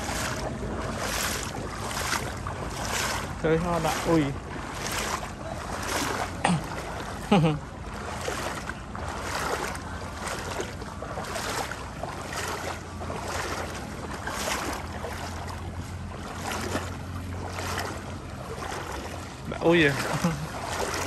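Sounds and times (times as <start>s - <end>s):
steady low hum: 0.0s - 21.0s
water rushing and splashing: 0.0s - 21.0s.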